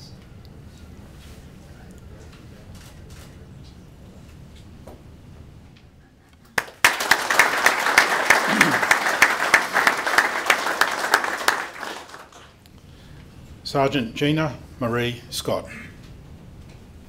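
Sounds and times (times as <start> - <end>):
audience applauding: 6.6 - 12.6.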